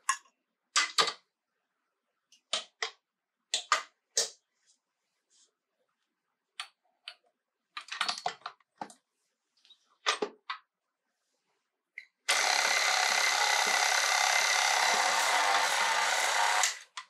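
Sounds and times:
stand mixer motor running: 0:12.3 - 0:16.8.

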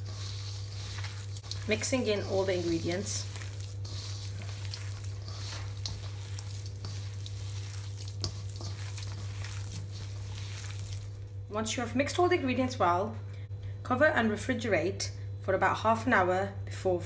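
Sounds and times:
wet squelching of meat: 0:00.0 - 0:11.4
steady low hum: 0:00.0 - 0:16.8.

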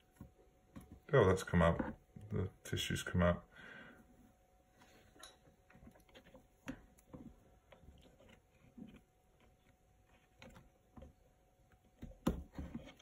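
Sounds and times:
paintbrush working in cup: 0:05.0 - 0:13.0.

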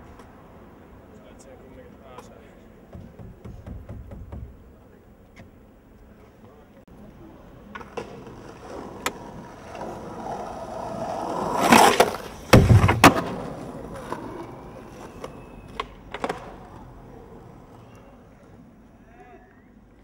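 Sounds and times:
skateboard wheels rolling on pavement: 0:00.0 - 0:03.6, 0:04.2 - 0:20.0
skateboard clacks: 0:07.6 - 0:18.0.

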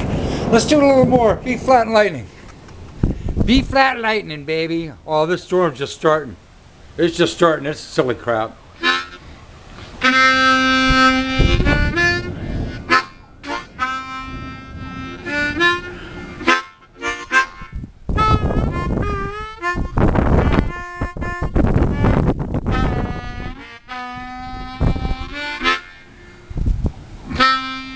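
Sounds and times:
harmonica playing: 0:08.8 - 0:26.6, 0:27.3 - 0:27.9.

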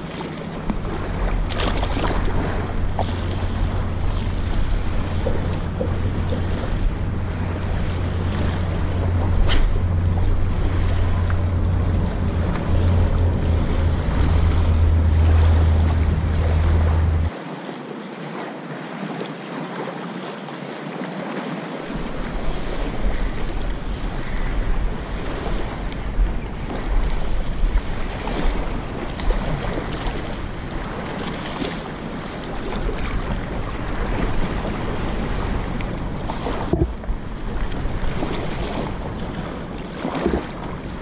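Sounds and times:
wind buffeting microphone: 0:00.0 - 0:17.3, 0:21.9 - 0:41.0
small waves lapping on sand: 0:00.0 - 0:41.0
heavy low rumble: 0:00.6 - 0:17.3, 0:33.4 - 0:38.2.

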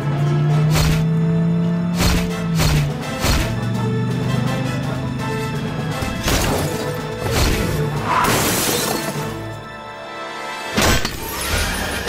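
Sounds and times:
cartoon soundtrack music: 0:00.0 - 0:12.0
shattering crash: 0:06.1 - 0:09.6.

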